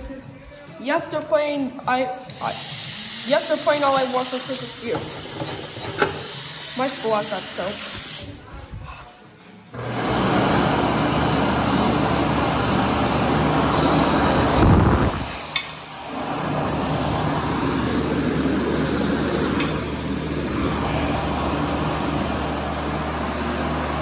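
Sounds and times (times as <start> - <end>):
electric hand dryer running: 2.3 - 8.3, 9.8 - 24.0
hand dryer click: 15.5 - 15.9, 19.5 - 20.4.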